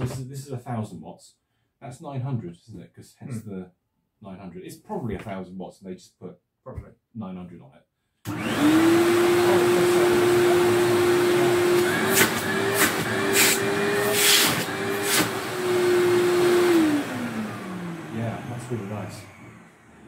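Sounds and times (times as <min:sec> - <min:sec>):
vacuum cleaner motor whine: 0:08.3 - 0:20.0.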